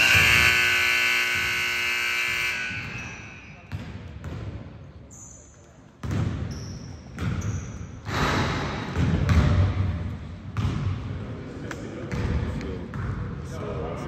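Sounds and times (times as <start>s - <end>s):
basketball bouncing on gym floor: 2.7s - 5.0s, 5.8s - 11.2s, 12.0s - 13.4s.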